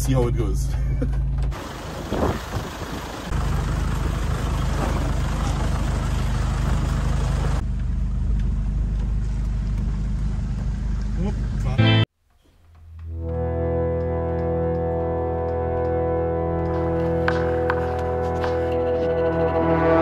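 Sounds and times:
road noise: 0.0 - 12.0, 13.0 - 20.0
engine running at low revs: 0.8 - 11.8, 13.2 - 20.0.

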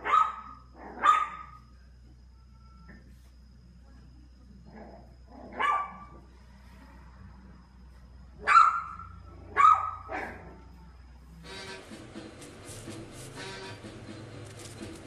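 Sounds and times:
puppy yapping: 0.0 - 1.6, 8.4 - 10.6.

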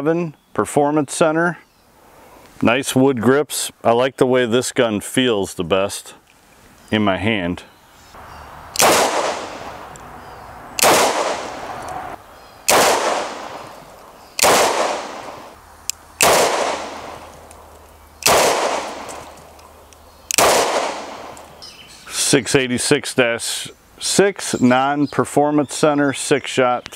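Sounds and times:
revolver shots: 8.8 - 9.9, 10.8 - 12.1, 12.7 - 13.8, 14.4 - 15.6, 16.2 - 17.4, 18.2 - 19.4, 20.4 - 21.4.

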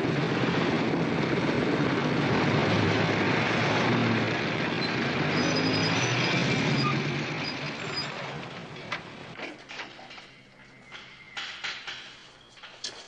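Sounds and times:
cars driving past: 0.0 - 9.4.

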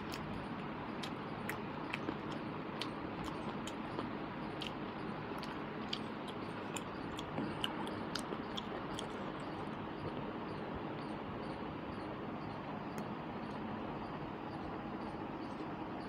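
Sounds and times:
chewing mouth clicks and smacks: 0.0 - 10.2.

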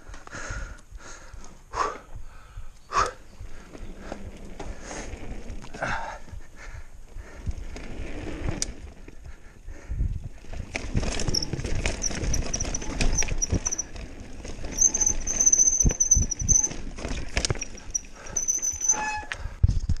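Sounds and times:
bike tyres rumbling on dirt: 0.0 - 20.0
bike knocks and rattles: 10.5 - 20.0
high-pitched brake squeal: 14.7 - 16.8, 17.6 - 19.5.

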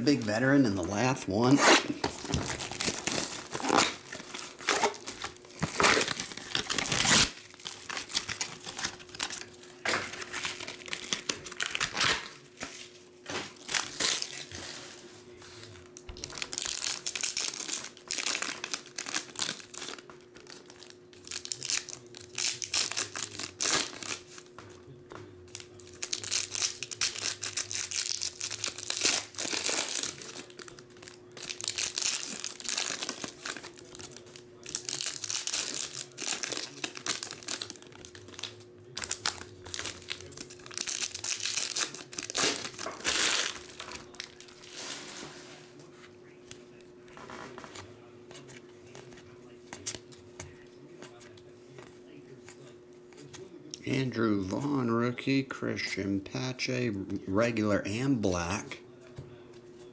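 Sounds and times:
foil wrappers crinkling and tearing: 0.0 - 24.9, 25.5 - 45.5.

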